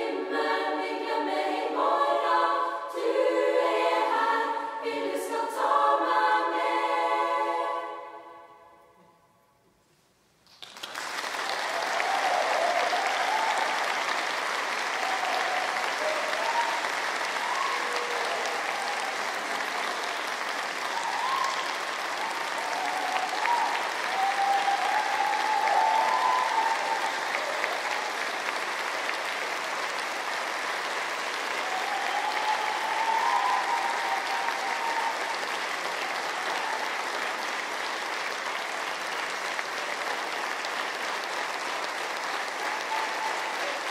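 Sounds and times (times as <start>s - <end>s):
audience applauding: 10.4s - 43.9s
short cheers: 11.3s - 28.5s, 31.4s - 37.2s, 42.3s - 43.9s.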